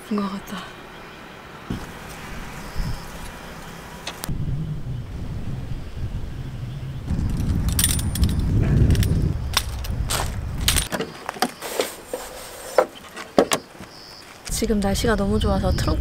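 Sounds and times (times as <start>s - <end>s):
low rumble: 1.7s - 10.9s.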